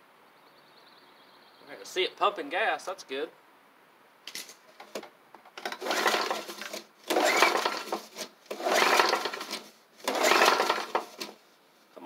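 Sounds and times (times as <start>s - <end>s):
recoil starter pulled: 5.6s - 11.4s.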